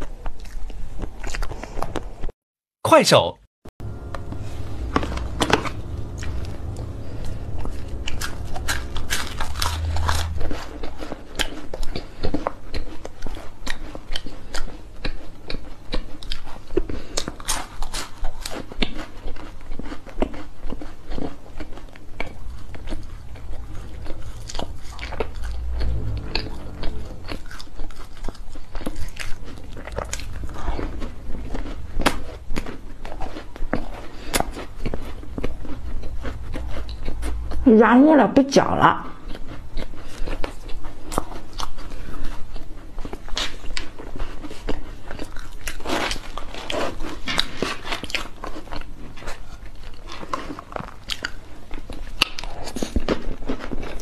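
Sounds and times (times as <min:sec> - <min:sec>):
low steady hum: 0:03.8 - 0:11.6, 0:21.8 - 0:41.2.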